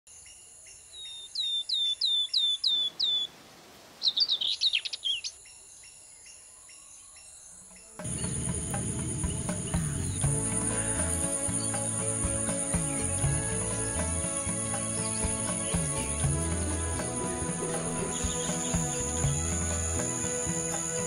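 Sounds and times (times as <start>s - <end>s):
bird twittering: 0.9s - 3.3s, 4.0s - 16.4s
bird call: 1.0s - 3.3s, 4.0s - 5.6s
insects trilling: 4.0s - 21.0s.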